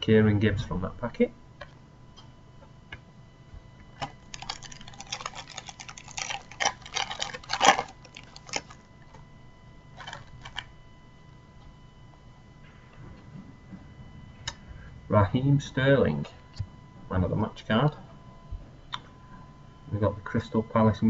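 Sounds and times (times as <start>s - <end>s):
foil wrapper crinkling and tearing: 4.0s - 9.2s, 10.0s - 10.7s.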